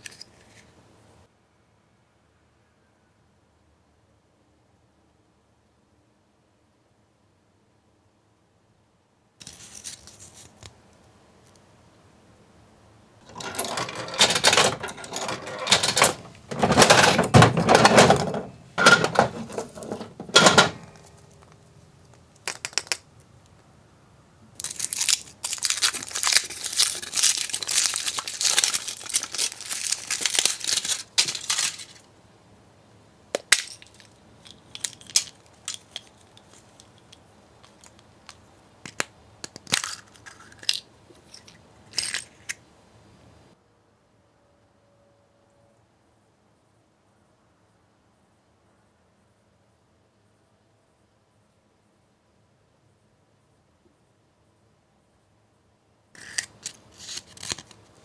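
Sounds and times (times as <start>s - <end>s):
coin dropping into machine: 13.3s - 20.9s
plastic capsule clicks: 22.1s - 23.1s
foil wrapper crinkling: 24.6s - 32.0s, 56.2s - 57.8s.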